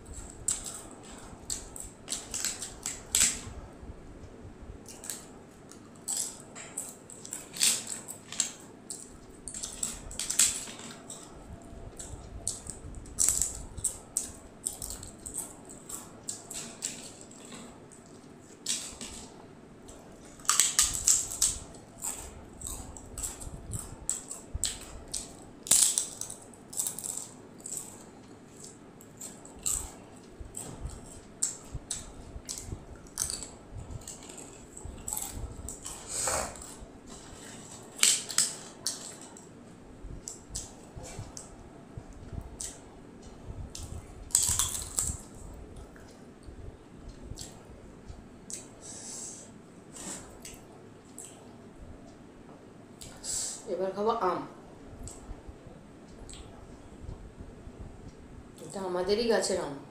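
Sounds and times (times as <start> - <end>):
crunchy chewing: 0.0 - 3.4, 4.8 - 39.5, 42.2 - 46.2.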